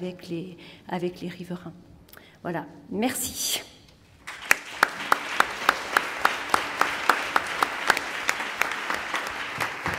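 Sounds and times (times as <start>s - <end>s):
audience applauding: 4.2s - 9.9s
close loud hand clapping: 4.2s - 9.9s.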